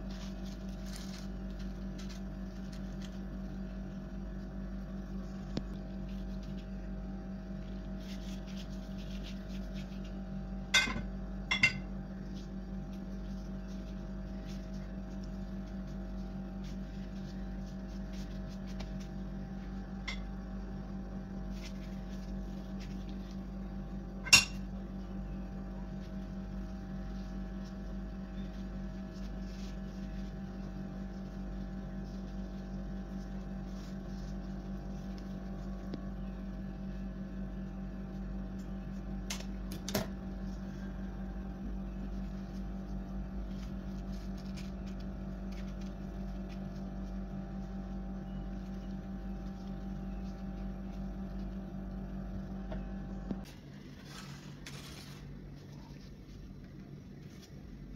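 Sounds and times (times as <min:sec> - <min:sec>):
pastry sheets crinkling: 0:00.0 - 0:11.4, 0:12.0 - 0:52.6, 0:53.4 - 0:57.9
steady low hum: 0:00.0 - 0:57.9.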